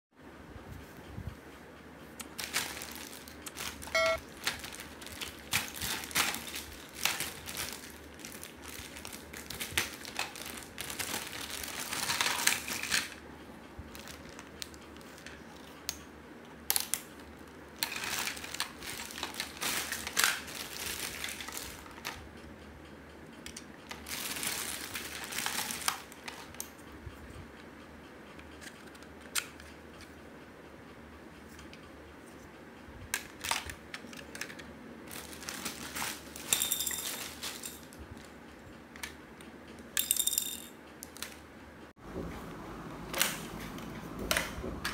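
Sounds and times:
plastic bag crinkling: 0:02.3 - 0:13.1, 0:13.9 - 0:14.6, 0:17.8 - 0:22.1, 0:24.0 - 0:26.5, 0:35.1 - 0:38.0.

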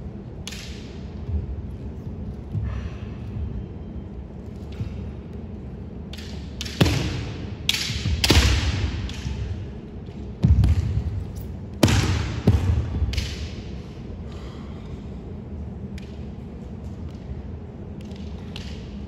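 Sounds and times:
bamboo sword strikes: 0:06.2 - 0:09.4, 0:11.8 - 0:13.6.

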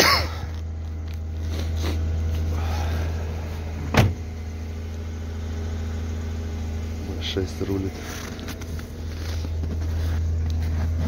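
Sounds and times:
car engine idling: 0:00.0 - 0:11.0
car door shutting: 0:03.8 - 0:04.3.

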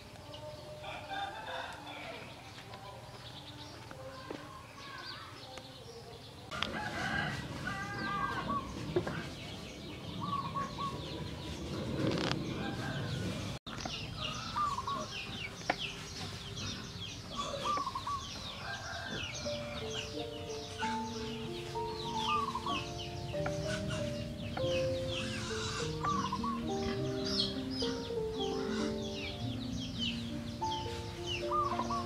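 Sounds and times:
small birds chirping: 0:00.0 - 0:32.0
rooster crowing: 0:00.4 - 0:02.6, 0:06.5 - 0:08.7, 0:12.5 - 0:13.5, 0:17.4 - 0:20.1
chickens clucking: 0:06.5 - 0:32.0.

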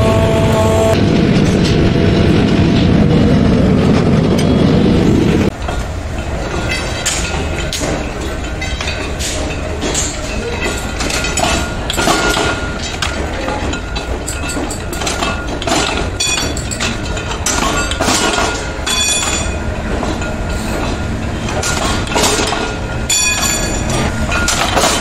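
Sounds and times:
heavy rumble: 0:00.0 - 0:25.0
metal clanks and knocks: 0:05.5 - 0:25.0.

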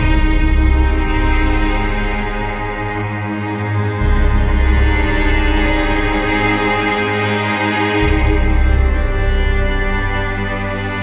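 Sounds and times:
classical string music with cello: 0:00.0 - 0:11.0.

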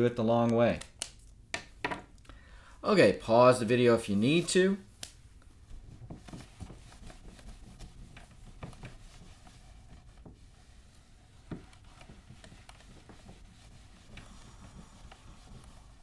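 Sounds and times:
mitt rubbing a whiteboard: 0:05.8 - 0:16.0.

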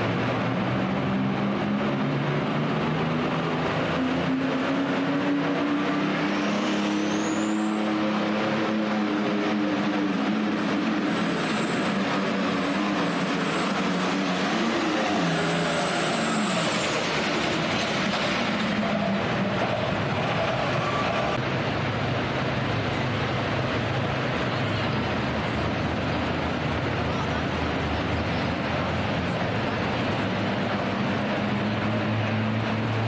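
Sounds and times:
high turbo whistle: 0:06.2 - 0:08.3
tractor engine at full throttle: 0:07.9 - 0:33.0.

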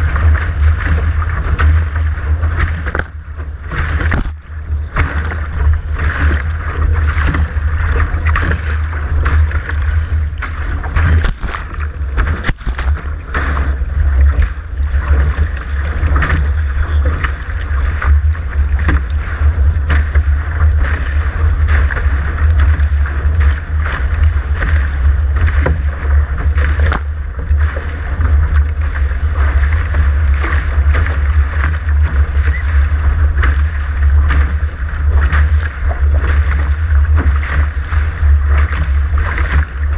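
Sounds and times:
water rushing and splashing: 0:00.0 - 0:39.9
wind buffeting microphone: 0:00.0 - 0:39.9
sharp knocks: 0:11.0 - 0:13.0.

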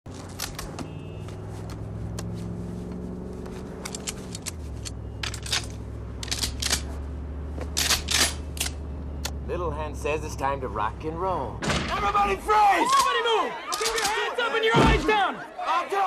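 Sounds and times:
guns and gear being handled: 0:00.1 - 0:08.8, 0:12.9 - 0:14.2.

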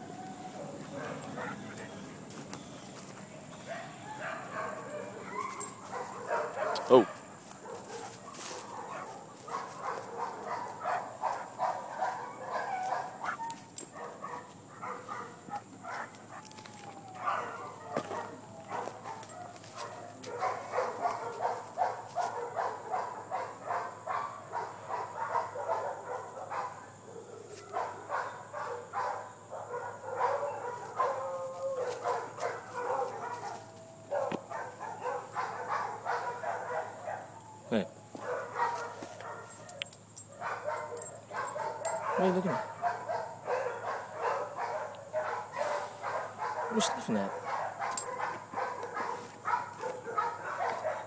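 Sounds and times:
dog panting: 0:00.6 - 0:05.2.

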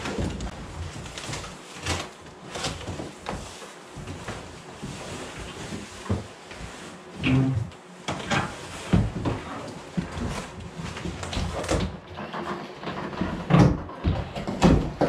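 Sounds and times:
cardboard scraping and rustling: 0:00.0 - 0:13.7
knocks and thumps: 0:11.0 - 0:15.0.

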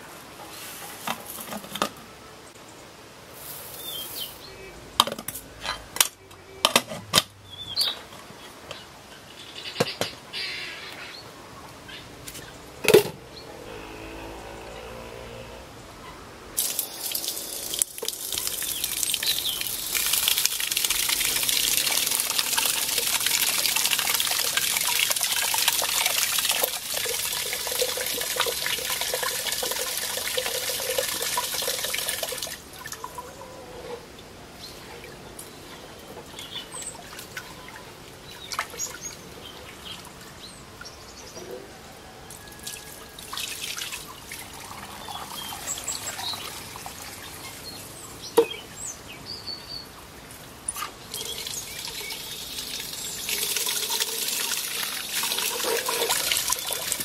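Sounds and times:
tap water running into metal pot: 0:16.6 - 0:32.5, 0:51.1 - 0:57.0
water poured onto concrete: 0:16.6 - 0:33.0, 0:51.1 - 0:57.0.

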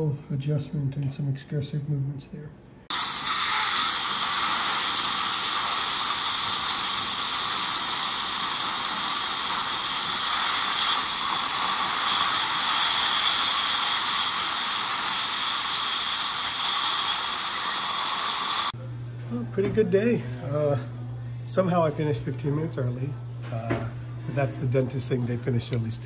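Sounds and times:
dental equipment hissing: 0:02.9 - 0:18.8.

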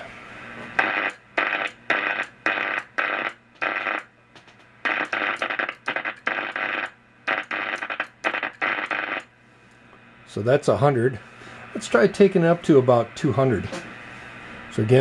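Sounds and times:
harsh buzzing hiss in bursts: 0:00.6 - 0:04.1, 0:04.8 - 0:09.3.

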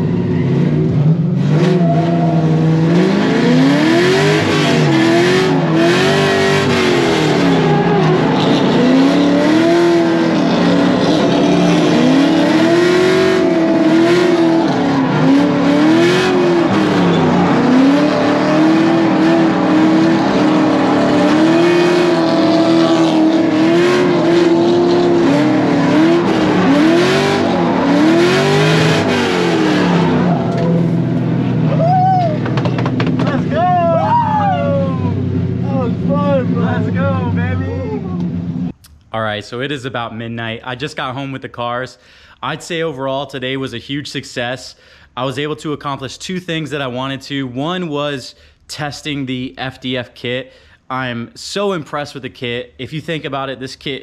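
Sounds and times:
tires squealing: 0:00.0 - 0:38.4
car engine revving: 0:00.0 - 0:38.8.

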